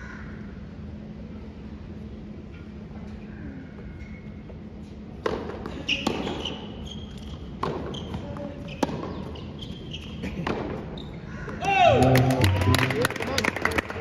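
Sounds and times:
tennis ball hit by rackets: 5.2 - 6.6, 7.2 - 9.4, 10.3 - 10.8
ball bouncing on hard court: 5.2 - 11.7.

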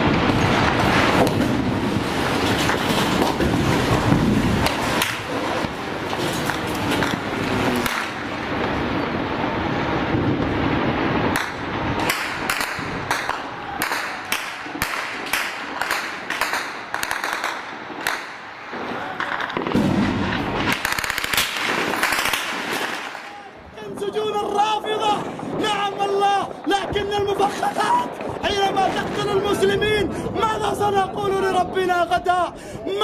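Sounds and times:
dense gunfire: 11.2 - 23.3
sharp gunshot cracks: 19.3 - 23.3.

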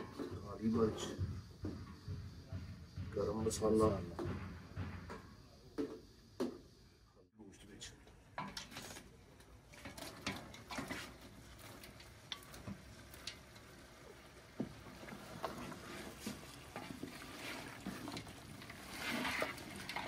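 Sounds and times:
cooking hiss: 8.3 - 20.0
wooden spoon scraping steel pot: 9.7 - 13.4, 14.9 - 20.0.

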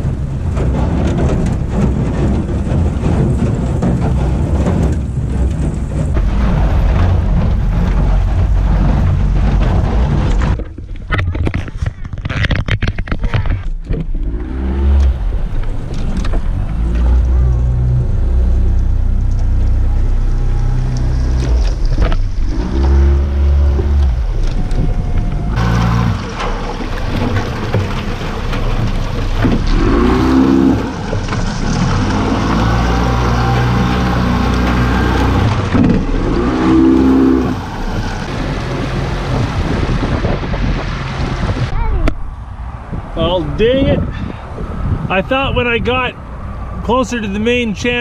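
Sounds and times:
wind rumble on microphone: 0.0 - 48.0
outboard motor running: 13.9 - 42.2.

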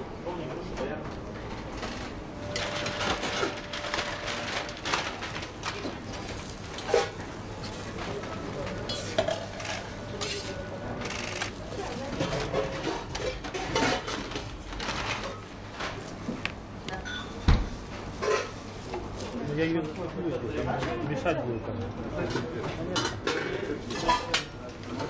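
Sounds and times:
utensils clinking and scraping: 2.5 - 16.0, 23.0 - 25.0.

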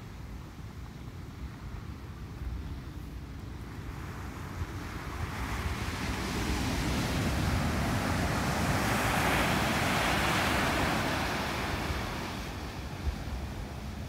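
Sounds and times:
ocean surf breaking on beach: 3.6 - 14.0.

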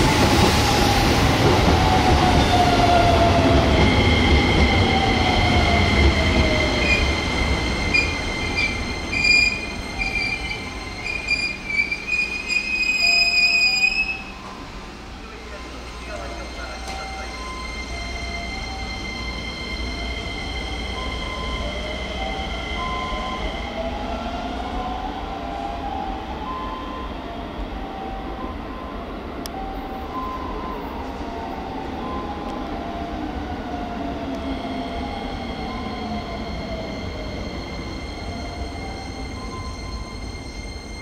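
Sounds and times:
train wheels rumbling: 0.0 - 26.5
electric train motors whining: 3.1 - 24.0.

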